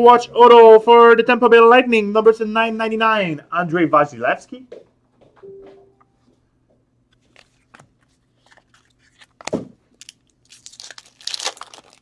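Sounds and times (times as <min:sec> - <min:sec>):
wrapper tearing and crinkling: 0:08.4 - 0:12.0.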